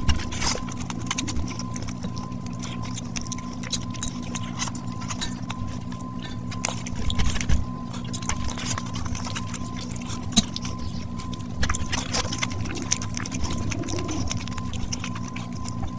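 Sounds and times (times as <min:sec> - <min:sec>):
fingers squishing oily rice: 0:00.0 - 0:15.9
steady low hum: 0:00.0 - 0:15.9
wet chewing and mouth clicks: 0:00.0 - 0:15.9.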